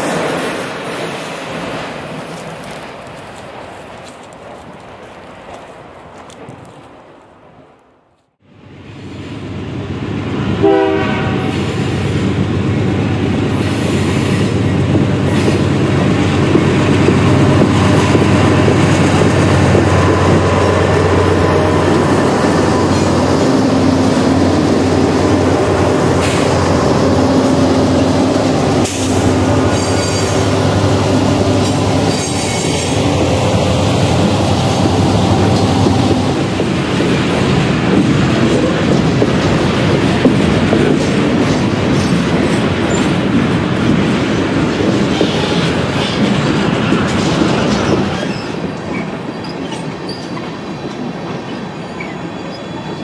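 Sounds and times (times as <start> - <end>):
freight train cars rolling: 0.0 - 7.8, 8.4 - 53.0
steel wheels squealing on rails: 10.6 - 36.6, 45.0 - 53.0.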